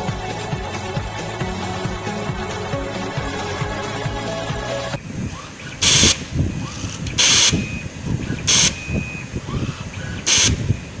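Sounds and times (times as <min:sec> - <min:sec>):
loud hisses: 0:05.0 - 0:11.0
thin whine: 0:05.0 - 0:11.0.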